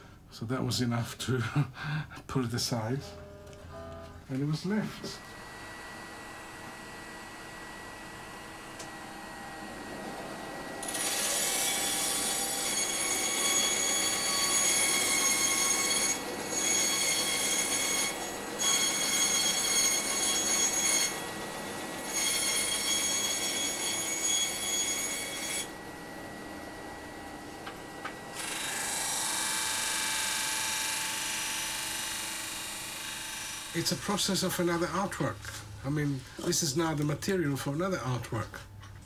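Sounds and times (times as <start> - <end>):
band saw running: 4.7 - 35.7
band saw screeching through wood: 10.8 - 21.4, 22.0 - 25.7.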